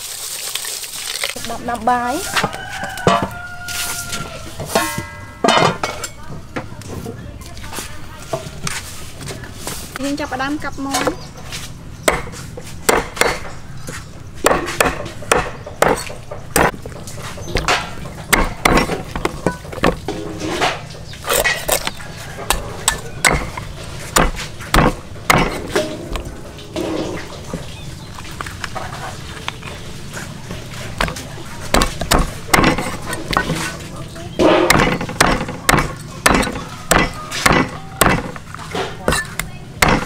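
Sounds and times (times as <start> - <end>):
cleaver chopping raw chicken: 12.0 - 16.9, 17.5 - 20.1, 21.2 - 26.3, 30.9 - 33.8, 34.4 - 40.0.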